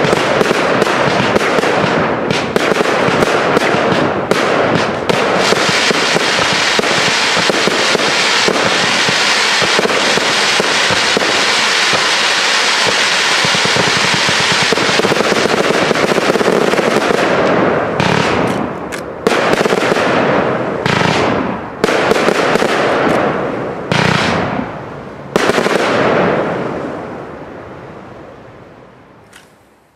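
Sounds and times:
fireworks bangs: 0.0s - 27.6s.

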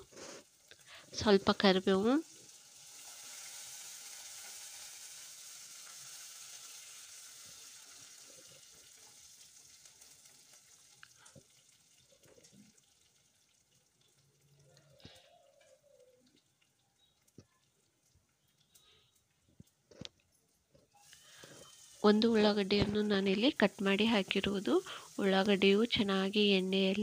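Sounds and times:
hot oil sizzling in a pot: 0.0s - 17.4s, 20.9s - 27.0s.

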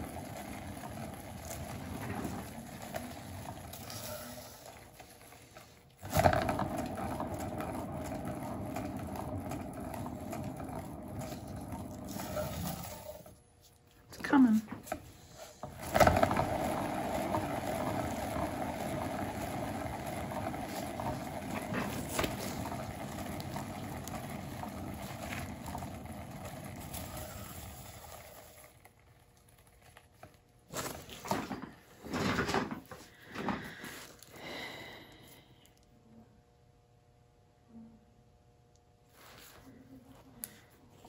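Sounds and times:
turntable whirring: 0.0s - 13.4s.

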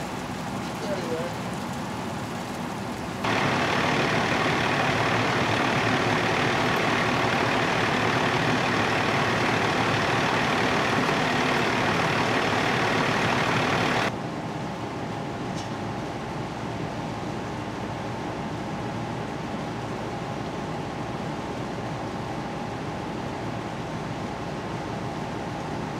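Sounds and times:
diesel engine idling: 3.0s - 14.2s.

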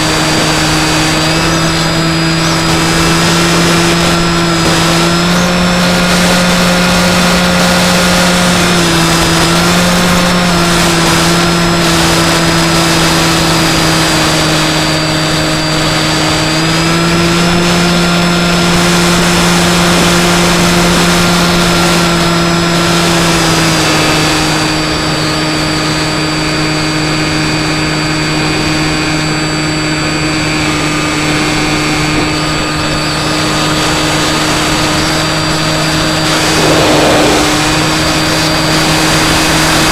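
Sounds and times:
electric motor and propeller hum: 0.0s - 18.4s, 36.2s - 38.8s
wind rushing past: 36.3s - 39.1s.

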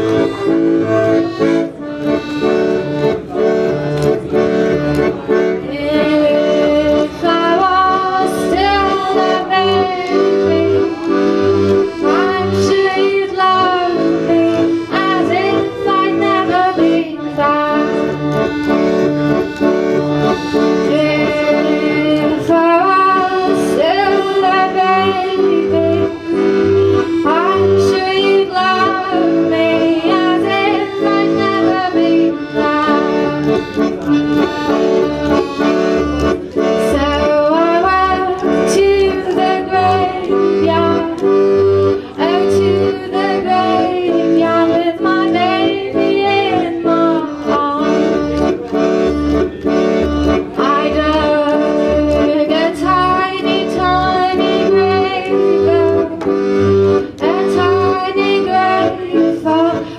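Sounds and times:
accordion playing chords: 0.0s - 59.9s
woman singing: 5.7s - 11.0s, 12.0s - 18.1s, 20.8s - 26.2s, 27.2s - 33.4s, 36.8s - 41.3s, 42.2s - 48.2s, 50.6s - 56.3s, 57.2s - 59.9s.

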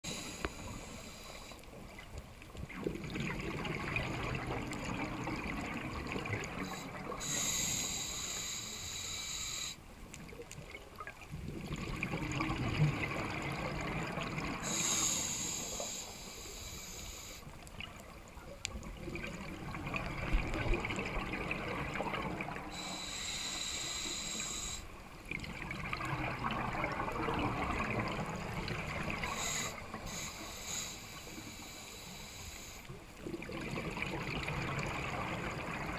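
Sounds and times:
hissing regulator inhale: 0.0s - 1.8s, 6.5s - 9.8s, 14.6s - 17.6s, 22.7s - 25.0s, 29.2s - 33.0s
exhaled bubbles underwater: 1.7s - 8.0s, 10.2s - 15.2s, 17.6s - 23.0s, 24.4s - 30.3s, 33.1s - 35.9s.

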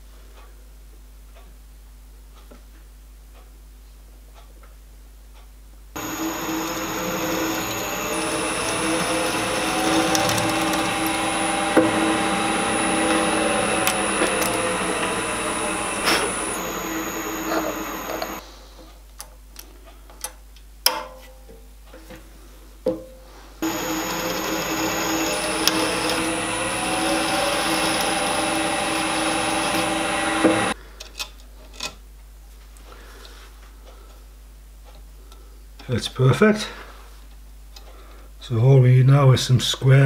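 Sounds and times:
drill press running: 6.0s - 18.4s, 23.6s - 30.8s.

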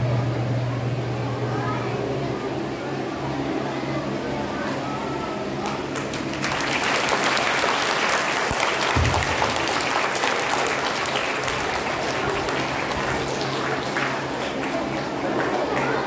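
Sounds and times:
audience applauding: 5.6s - 16.0s.

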